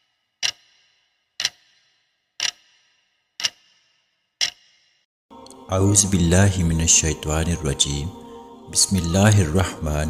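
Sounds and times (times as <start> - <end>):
clock ticking: 0.0 - 5.6.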